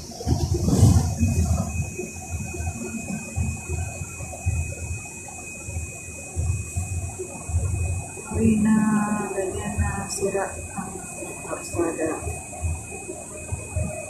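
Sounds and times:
bus engine and road rumble: 0:00.0 - 0:04.3
thin steady whine: 0:00.0 - 0:14.0.

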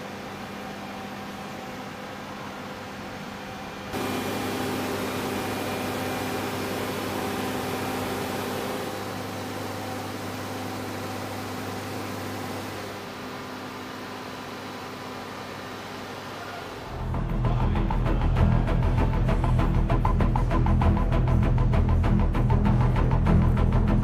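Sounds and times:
machinery hum: 0:00.0 - 0:24.0.

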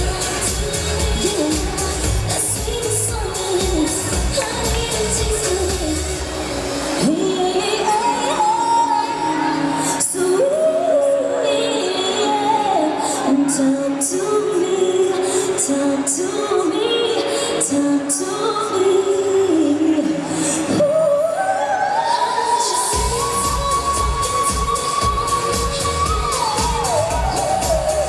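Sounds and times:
pop backing track with drum beat: 0:00.0 - 0:09.2, 0:22.6 - 0:28.0
woman singing into microphone: 0:00.0 - 0:28.0.

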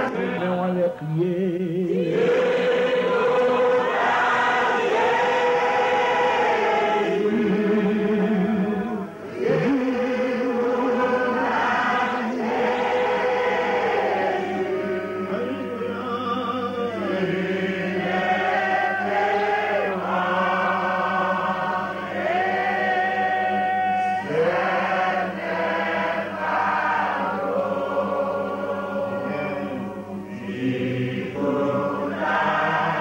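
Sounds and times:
man singing a slow chant: 0:15.2 - 0:17.1.

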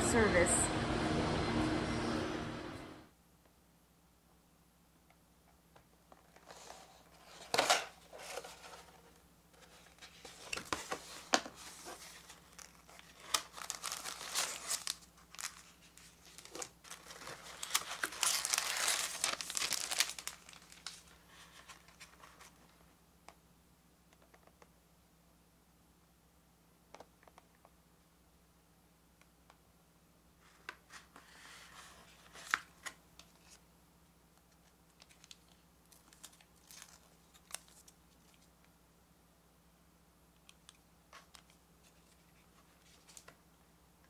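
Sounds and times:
plastic film crinkling: 0:10.0 - 0:22.7, 0:34.5 - 0:38.5.

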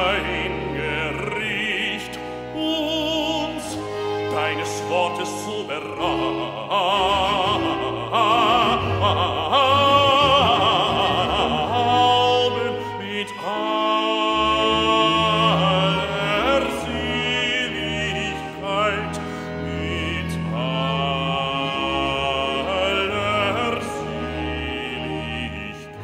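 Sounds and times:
man singing with vibrato: 0:00.0 - 0:26.0
string ensemble sustained notes: 0:00.0 - 0:26.0.

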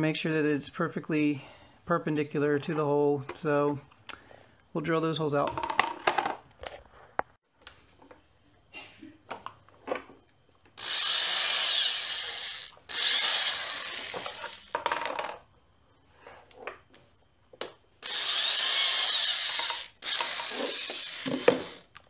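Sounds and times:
electric drill whining: 0:10.8 - 0:14.7, 0:18.0 - 0:22.0.

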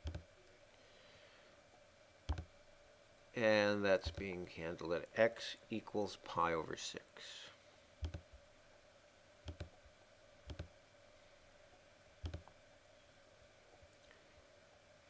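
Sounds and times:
computer mouse clicks: 0:00.0 - 0:00.3, 0:02.3 - 0:02.5, 0:08.0 - 0:08.3, 0:09.5 - 0:09.8, 0:10.5 - 0:10.7, 0:12.2 - 0:12.5
faint steady hum: 0:00.0 - 0:15.0.

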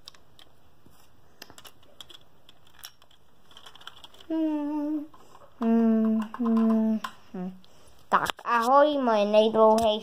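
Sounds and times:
plastic toy bricks clicking: 0:01.4 - 0:04.3, 0:06.0 - 0:07.2
person humming: 0:04.3 - 0:07.6.

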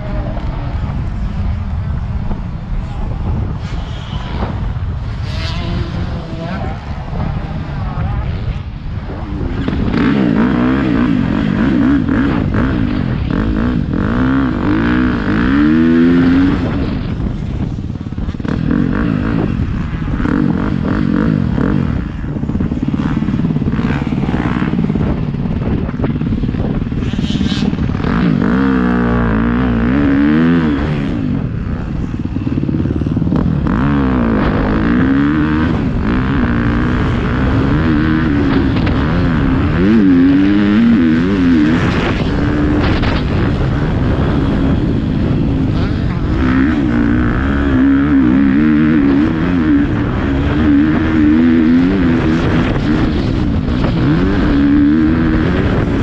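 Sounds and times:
motocross bike engine revving: 0:00.0 - 0:56.0.

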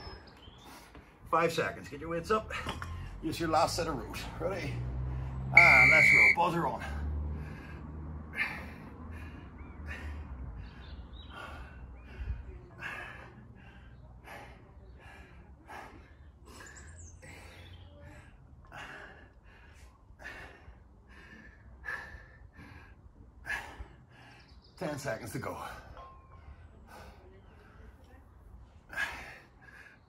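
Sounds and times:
man breathing hard: 0:06.9 - 0:24.6.

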